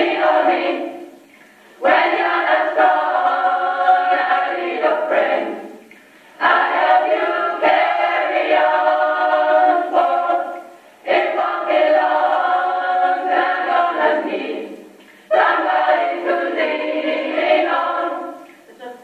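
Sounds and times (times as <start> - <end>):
gospel choir singing: 0.0 - 19.0.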